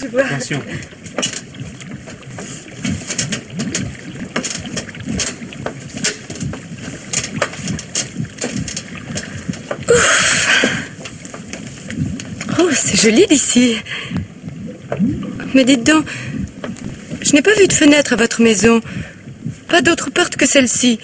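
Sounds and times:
river water lapping: 0.0s - 20.2s
wooden knocks and creaks: 0.7s - 9.9s, 10.5s - 12.7s, 16.4s - 17.9s.

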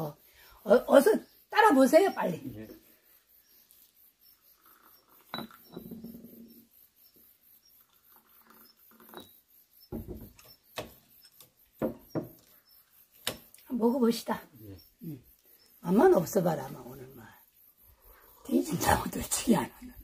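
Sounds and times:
teacups clinking: 4.6s - 6.3s, 7.8s - 9.4s.

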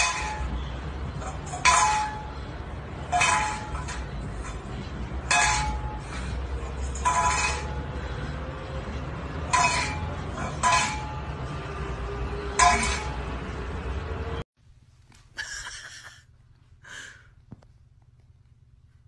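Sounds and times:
metal bowl clinking on tiles: 12.6s - 13.1s.

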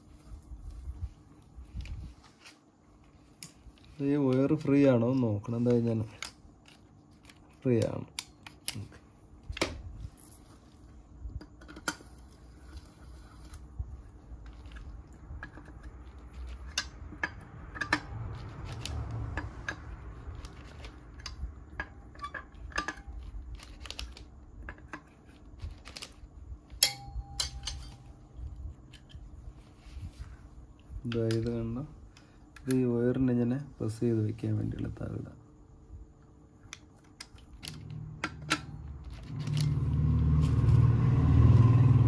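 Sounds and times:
metallic click with ring: 26.8s - 28.2s.

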